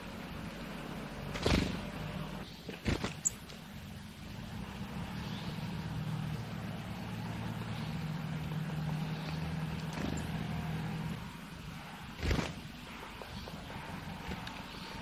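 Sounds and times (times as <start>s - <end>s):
motor engine running: 0.0s - 3.1s, 3.9s - 12.5s.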